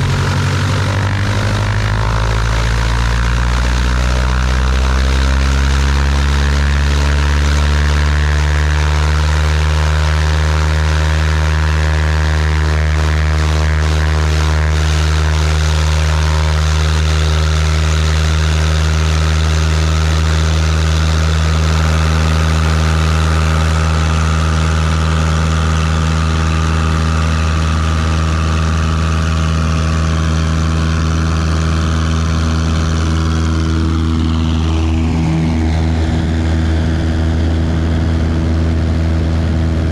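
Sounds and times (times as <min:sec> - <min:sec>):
propeller plane engine running: 0:00.0 - 0:39.9.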